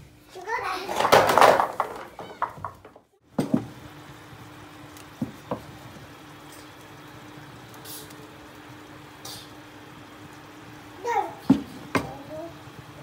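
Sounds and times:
short hisses: 7.8 - 8.2, 9.2 - 9.6.

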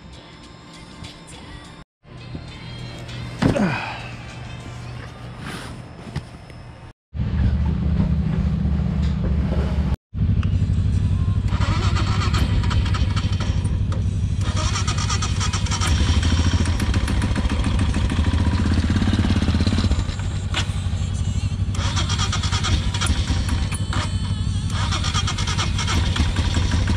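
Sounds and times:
motorcycle engine idling: 10.2 - 26.9.

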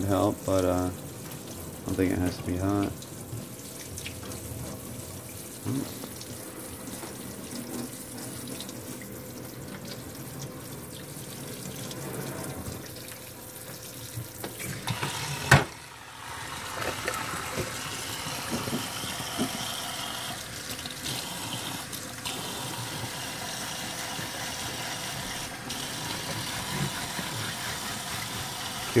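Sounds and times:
sink sprayer hissing: 13.9 - 29.0.

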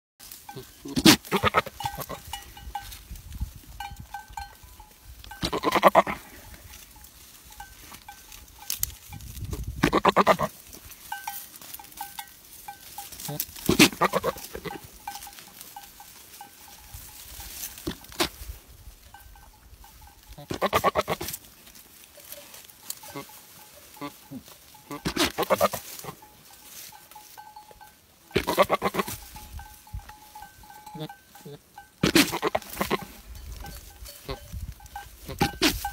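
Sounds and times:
goat bleating: 0.5 - 2.4, 5.3 - 6.4, 9.8 - 10.6, 13.2 - 15.2, 20.3 - 21.4, 23.0 - 26.2, 28.3 - 29.2, 30.8 - 33.2, 35.2 - 35.9.

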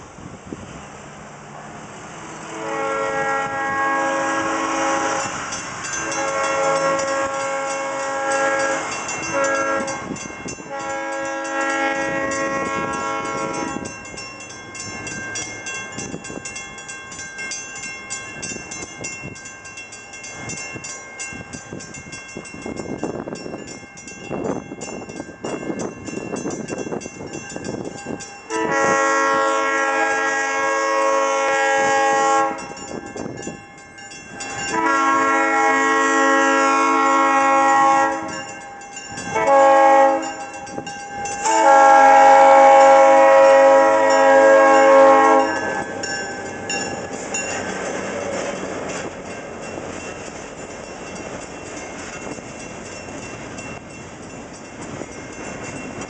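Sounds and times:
train and street noise: 0.0 - 56.0
locomotive air horn blasts: 2.4 - 13.9, 28.5 - 32.8, 34.5 - 38.5, 39.3 - 40.8, 41.4 - 46.0
crossing signal bell ringing: 4.6 - 30.2, 31.8 - 56.0.

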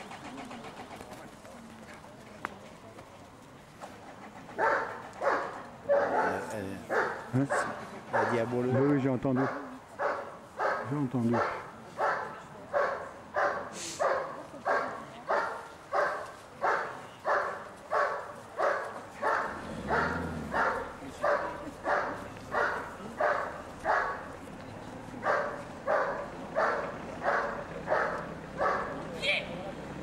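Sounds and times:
dog barking rhythmically: 4.6 - 8.4, 25.3 - 28.9.

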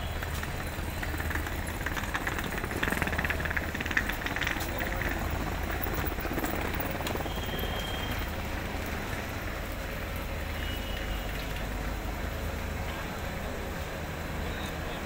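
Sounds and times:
train low rumble: 0.0 - 15.0.

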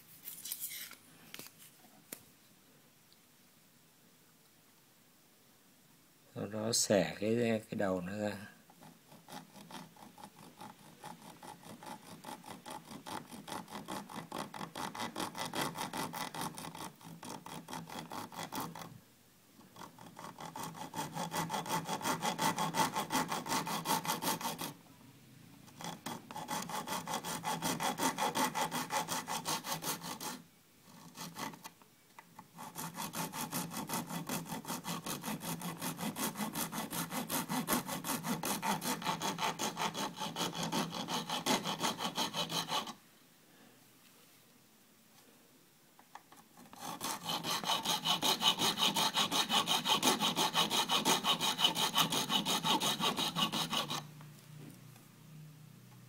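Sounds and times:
hacksaw blade sawing wood: 8.8 - 18.9, 19.8 - 24.8, 25.8 - 30.4, 32.6 - 43.0, 46.6 - 54.1.

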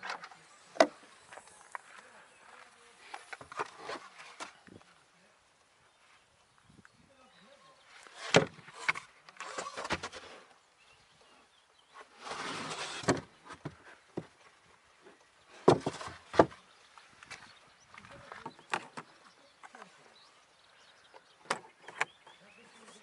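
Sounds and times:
carpeted board rustling: 12.0 - 14.5.

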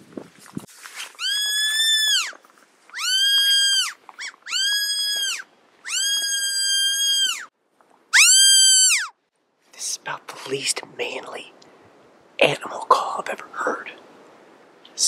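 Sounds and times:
deer call bleats: 3.0 - 7.5.

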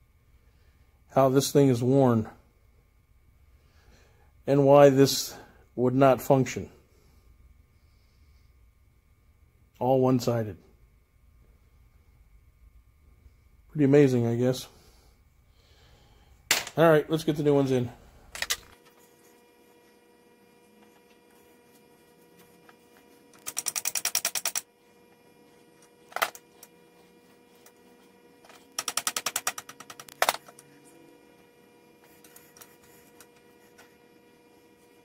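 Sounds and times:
rapid metallic clicking: 23.4 - 24.7, 28.8 - 30.4.

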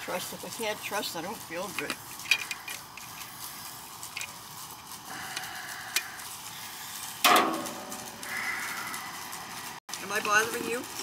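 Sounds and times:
crimping tool clicks and scraping: 1.6 - 3.3.

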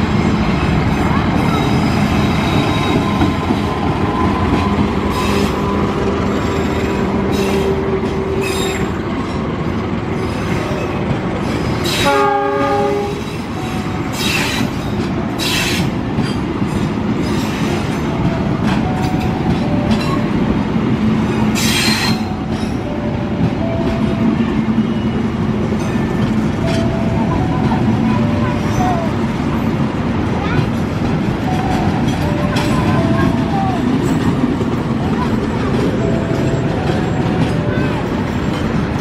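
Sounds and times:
train wheels rumbling on rails: 0.0 - 39.0
multi-tone train horn blast: 1.7 - 8.9, 11.8 - 14.6.

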